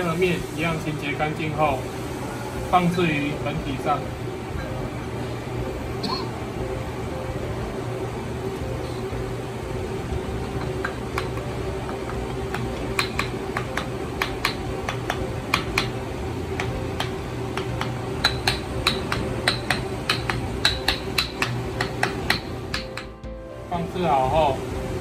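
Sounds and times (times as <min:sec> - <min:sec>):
wooden mallet tapping metal: 0:10.4 - 0:16.0, 0:16.6 - 0:23.2.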